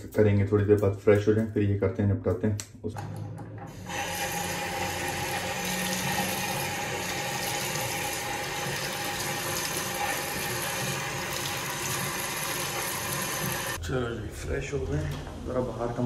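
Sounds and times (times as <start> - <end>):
tap running into washbasin: 3.7 - 13.8.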